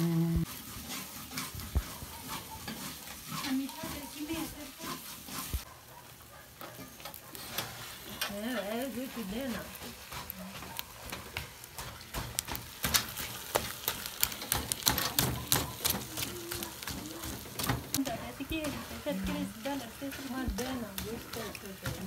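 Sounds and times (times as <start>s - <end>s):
light sizzle of frying: 0.0s - 22.0s
ladle scraping steel pot: 0.4s - 5.7s.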